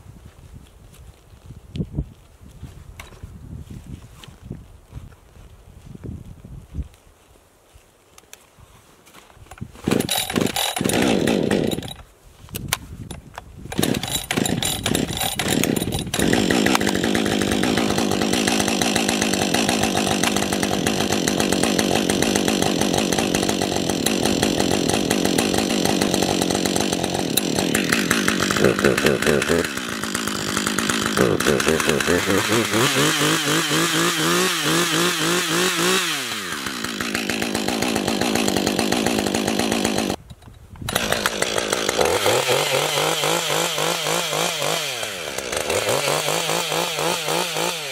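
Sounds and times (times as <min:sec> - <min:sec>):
chainsaw starting and running: 0:09.6 - 0:12.1, 0:13.7 - 0:47.9.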